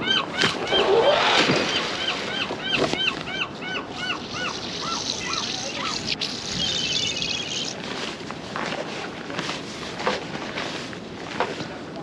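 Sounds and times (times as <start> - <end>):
bird calling: 0.0 - 7.8
rapid high chatter: 3.4 - 7.8.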